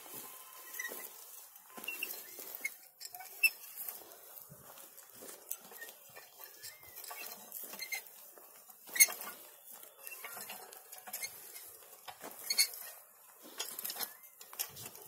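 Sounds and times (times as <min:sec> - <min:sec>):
weeder scraping through soil: 0:00.0 - 0:15.0.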